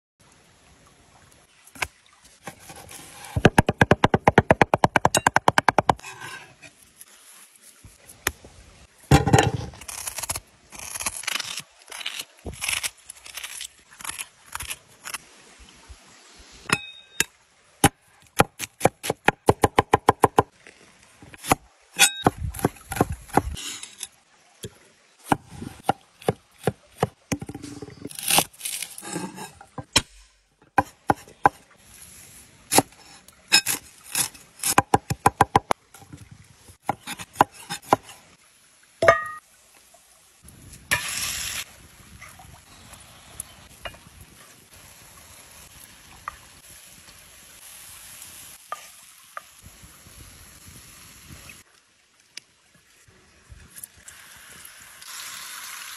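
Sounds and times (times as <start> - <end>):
knife chopping on wooden board: 30.8 - 31.6
meat sizzling in skillet: 54.2 - 55.9.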